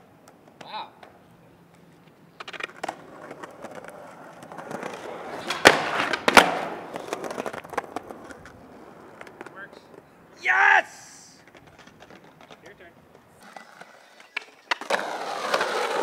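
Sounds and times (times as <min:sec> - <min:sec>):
skateboard rolling: 0:00.2 - 0:10.3, 0:11.4 - 0:16.0
skateboard cracks: 0:02.4 - 0:09.6, 0:11.4 - 0:16.0.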